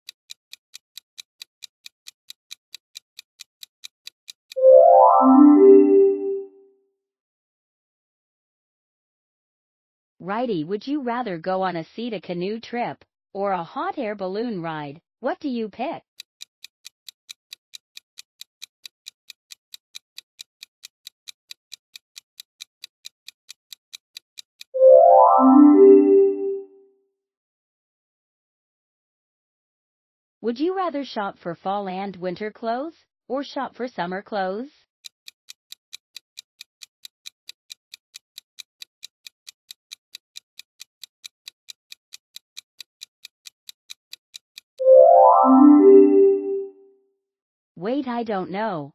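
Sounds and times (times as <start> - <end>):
clock ticking: 0.0 - 6.0, 16.2 - 25.0, 35.0 - 44.9
musical chime: 4.6 - 6.5, 24.8 - 26.7, 44.8 - 46.8.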